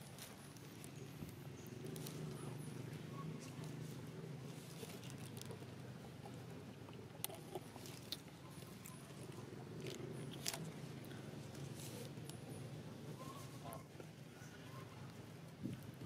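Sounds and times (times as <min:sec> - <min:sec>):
monkey chewing crunches: 0:06.9 - 0:10.8.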